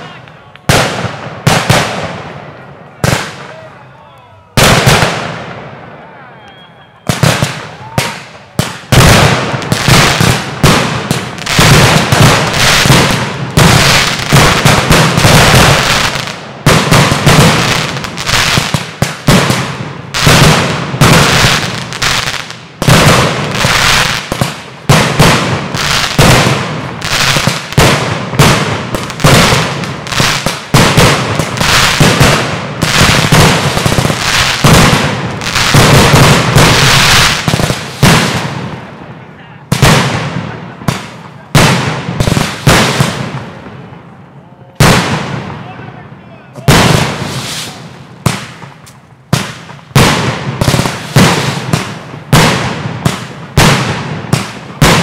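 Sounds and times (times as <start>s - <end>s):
fireworks shells bursting: 47.0s - 53.8s.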